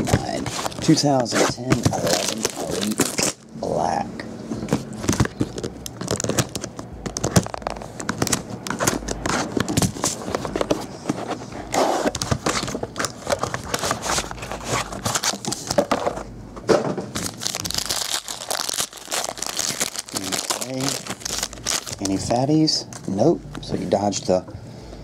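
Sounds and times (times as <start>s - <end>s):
box being handled: 0.0s - 3.3s, 4.6s - 16.2s
wrapper crinkling and tearing: 0.0s - 3.4s, 5.1s - 10.2s, 17.2s - 22.5s.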